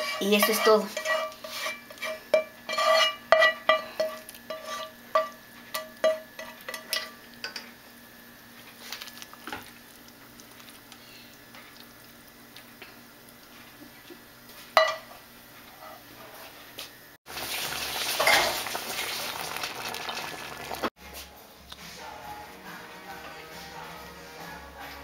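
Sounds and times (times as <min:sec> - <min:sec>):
spoon scraping and tapping pan: 0:00.0 - 0:07.7
spoon stirring pot: 0:00.0 - 0:07.7.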